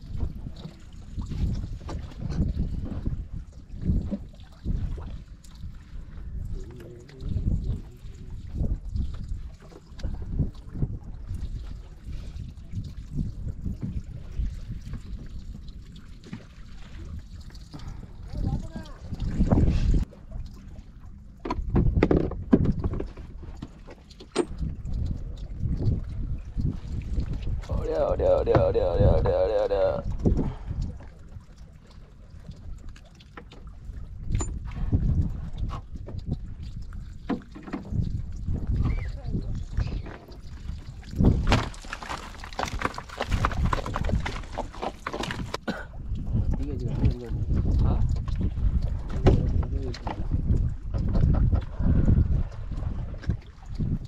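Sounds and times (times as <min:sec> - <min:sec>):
knocks and splashes: 0:00.0 - 0:54.0
water slapping boat hull: 0:00.0 - 0:54.0
fish flapping against hard surfaces: 0:41.4 - 0:45.6.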